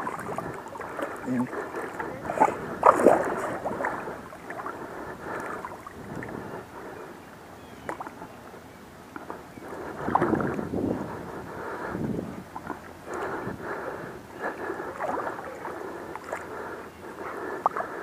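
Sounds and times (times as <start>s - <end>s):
water splashing and sloshing: 0.0s - 18.0s.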